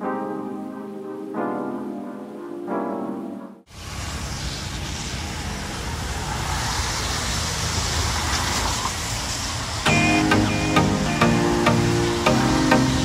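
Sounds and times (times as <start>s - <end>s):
music: 0.0s - 3.7s, 9.9s - 13.0s.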